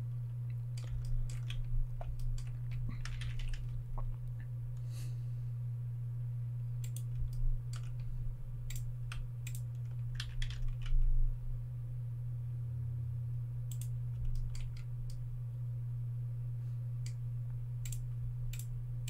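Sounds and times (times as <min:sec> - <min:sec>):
low electrical hum: 0:00.0 - 0:19.0
keyboard and mouse clicking: 0:00.8 - 0:03.8, 0:06.8 - 0:08.0, 0:08.7 - 0:11.0, 0:13.7 - 0:15.2.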